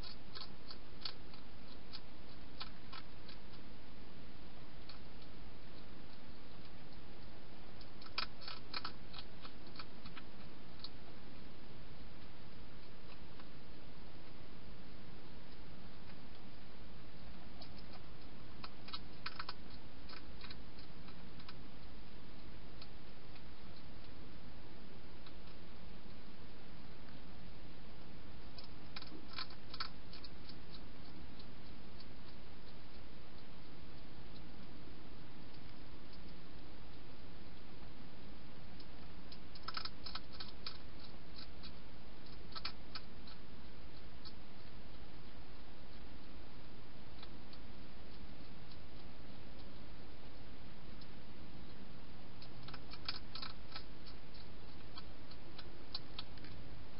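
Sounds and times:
hedgehog crunching dry food: 0:00.0 - 0:03.8, 0:04.8 - 0:14.4, 0:17.2 - 0:24.2, 0:28.4 - 0:36.8, 0:38.7 - 0:50.3, 0:51.7 - 0:56.7
steady hiss: 0:00.0 - 0:56.9.

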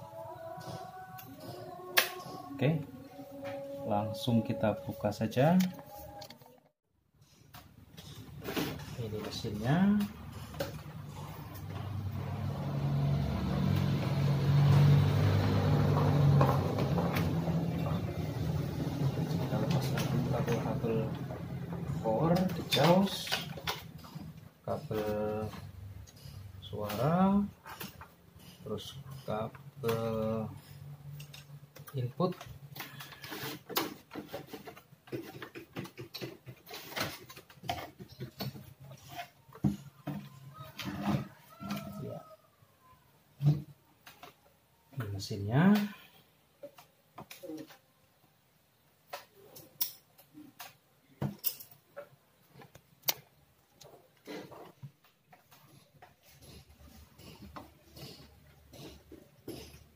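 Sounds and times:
vehicle engine running: 0:10.2 - 0:22.3.

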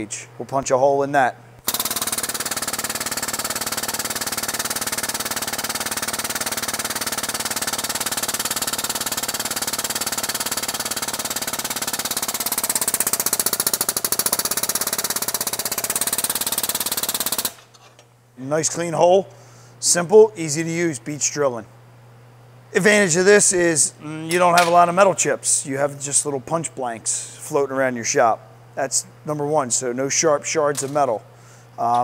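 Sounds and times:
hydraulic pump chattering: 0:01.6 - 0:17.7.

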